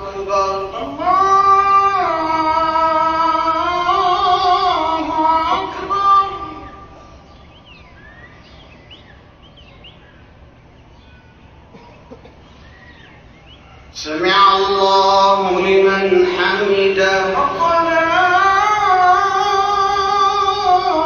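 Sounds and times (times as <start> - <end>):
man chanting on long gliding notes: 0.0 - 7.0, 14.0 - 21.0
faint bird chirps: 6.5 - 14.1.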